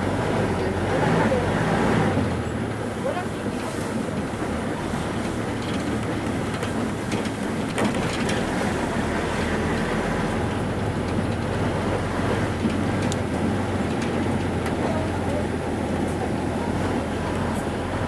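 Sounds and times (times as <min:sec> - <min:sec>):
vehicle engine hum: 0:00.0 - 0:18.0.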